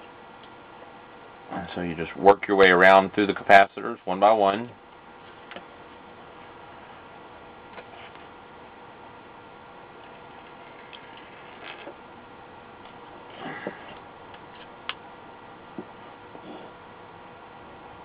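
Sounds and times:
steady low hiss: 0:00.0 - 0:18.0.

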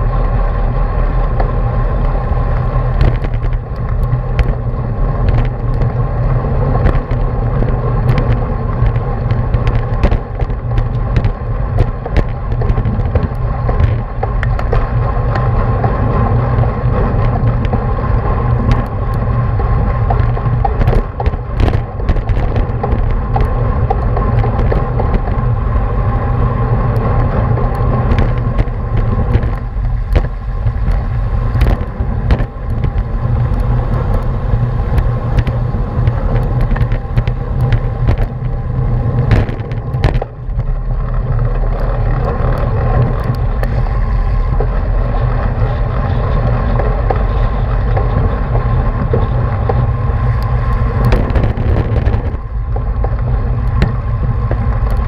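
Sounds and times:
road and tyre noise: 0:00.0 - 0:55.0
wind rushing over microphone: 0:00.0 - 0:55.0.

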